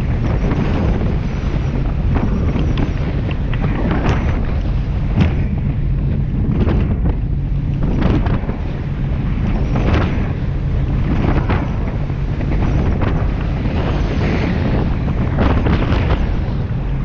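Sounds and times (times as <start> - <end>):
boat hull splashing: 0.0 - 17.0
wind buffeting microphone: 0.0 - 17.0.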